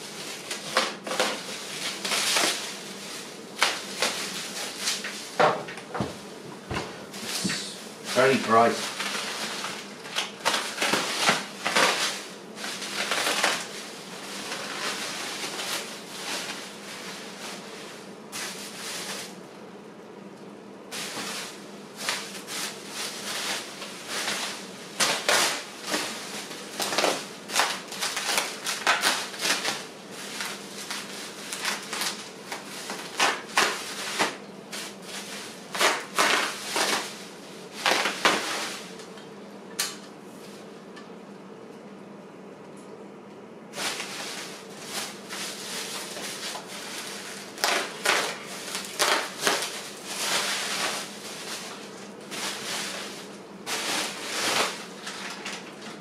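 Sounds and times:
packaging and parts handled: 43.8 - 55.7.

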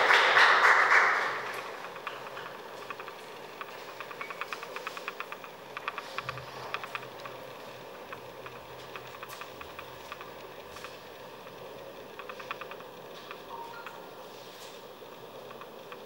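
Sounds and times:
scattered handclaps: 0.0 - 2.5
steady low hum: 0.0 - 16.0.

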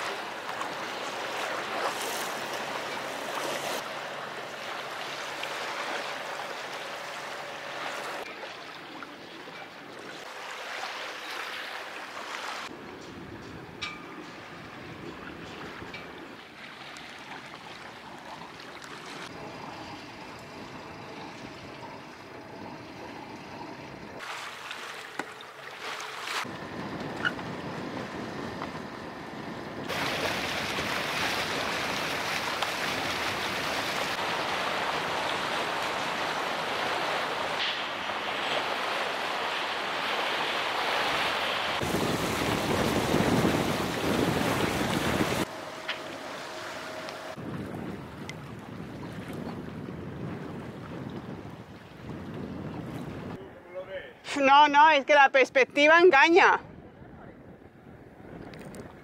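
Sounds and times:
water rushing past boat hull: 0.0 - 12.8, 14.4 - 29.0, 29.8 - 53.4
wind buffeting microphone: 26.4 - 37.5, 41.8 - 45.5, 46.4 - 53.5, 56.4 - 59.0.

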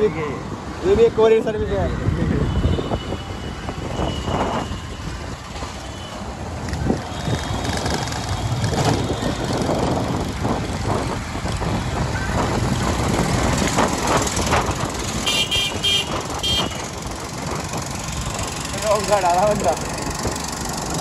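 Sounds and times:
busy road traffic: 0.0 - 21.0
vehicle horn beeping: 15.2 - 16.8.

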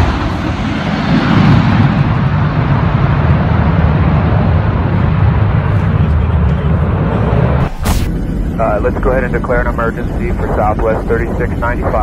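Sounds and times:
aircraft engines rumbling: 0.0 - 12.0.

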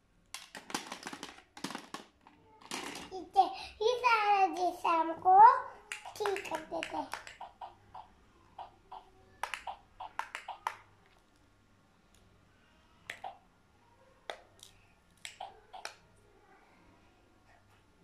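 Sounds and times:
hard plastic toy clicking: 0.3 - 3.1, 5.9 - 10.8.

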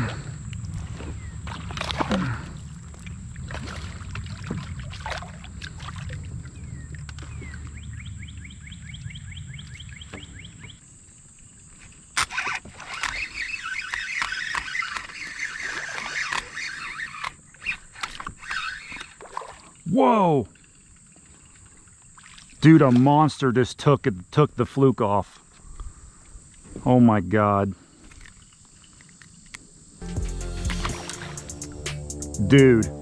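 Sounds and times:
fishing reel clicking: 12.2 - 19.1.

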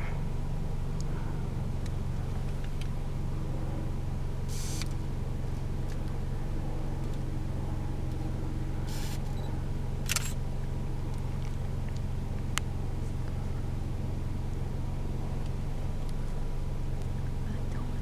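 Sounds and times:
car engine idling: 0.0 - 18.0
short hiss: 4.5 - 4.9, 8.9 - 9.2
single click: 10.0 - 10.4.

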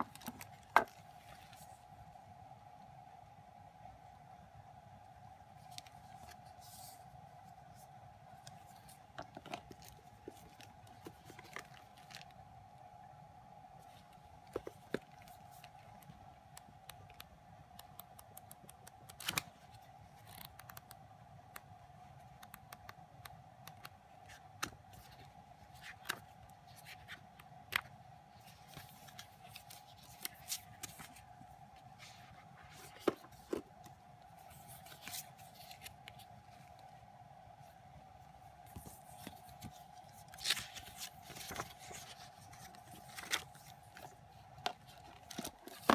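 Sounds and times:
photobook pages flipping: 0.0 - 1.8, 5.6 - 7.0, 7.7 - 12.4, 13.8 - 16.2, 16.9 - 21.0, 23.7 - 36.9, 38.6 - 45.9
faint steady hum: 0.0 - 45.9
cards and plastic wrap rustling: 8.4 - 12.4, 13.8 - 16.2, 24.3 - 36.9, 38.7 - 45.9.

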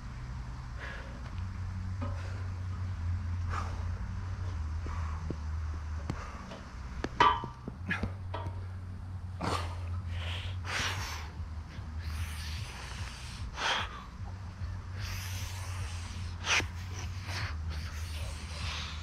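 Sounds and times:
man breathing hard: 0.7 - 1.4, 3.3 - 6.9, 9.4 - 19.0.

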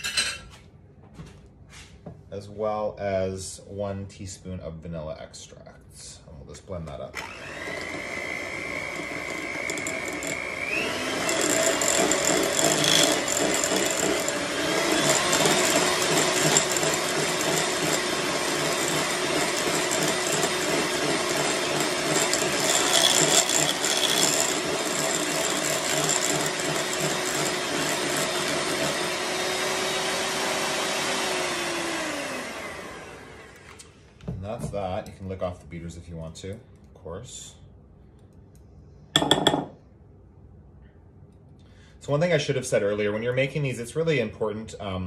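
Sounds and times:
electric hand mixer whine: 7.2 - 33.8.

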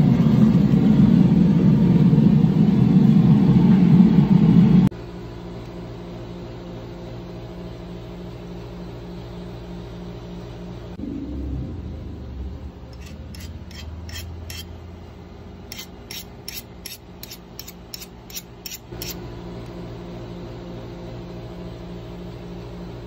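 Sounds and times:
steady low hum: 0.0 - 23.0
metal tool scraping steel blade: 12.9 - 14.8, 15.7 - 19.2.

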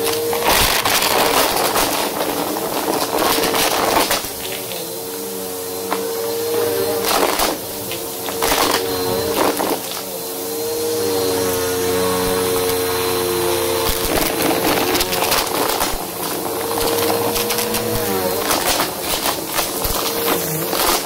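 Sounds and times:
debris crunching and rattling: 0.0 - 4.8, 13.8 - 21.0
vacuum cleaner motor hum: 0.0 - 21.0.

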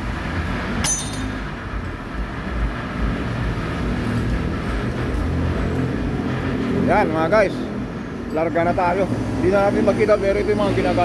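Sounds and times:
sharp metallic clink: 0.8 - 1.5.

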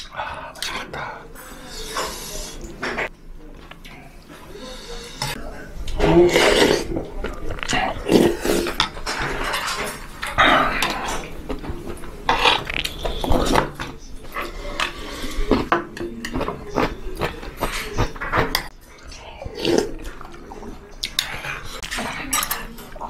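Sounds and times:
slurping and chewing: 3.7 - 23.0
spoon and chopsticks clinking bowl: 21.1 - 23.0.

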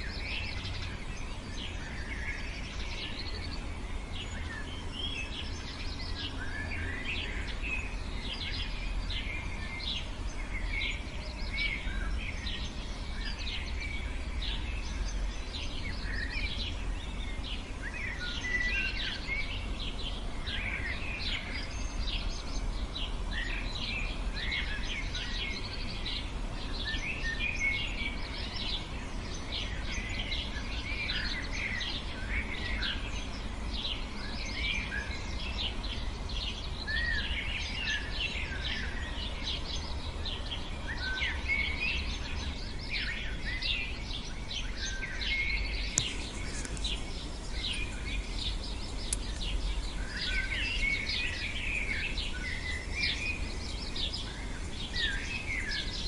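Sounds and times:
low steady rumble: 0.0 - 56.0
songbirds chirping: 0.0 - 56.0.

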